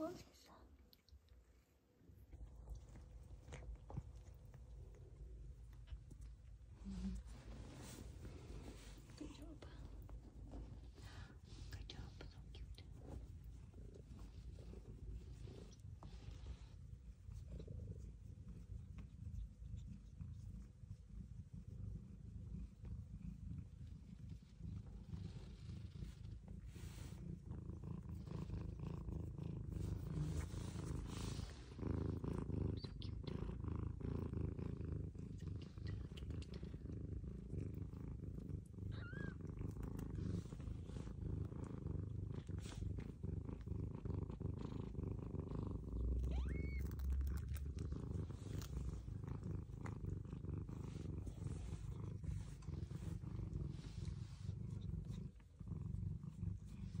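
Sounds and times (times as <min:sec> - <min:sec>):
cat purring: 0:00.0 - 0:57.0
kittens squeaking: 0:46.3 - 0:47.3.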